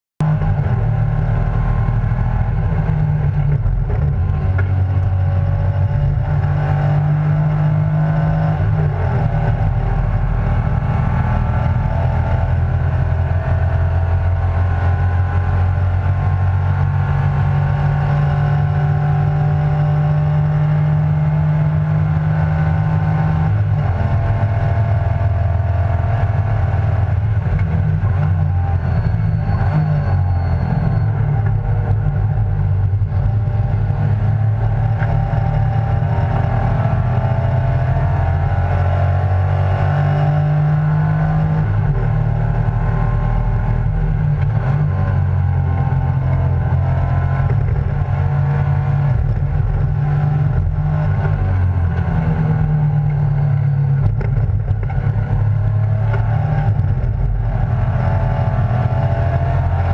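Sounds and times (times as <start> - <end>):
race car engine running hard: 0.2 - 59.9.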